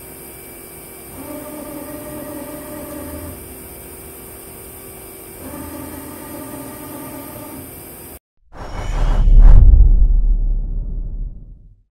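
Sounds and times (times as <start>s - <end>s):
lathe machine hum: 0.0s - 8.1s
motor whine: 0.0s - 8.2s.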